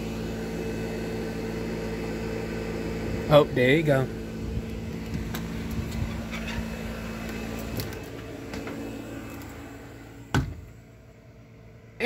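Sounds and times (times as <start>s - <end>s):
steady low hum: 0.0s - 12.0s
door shutting thump: 10.3s - 10.8s.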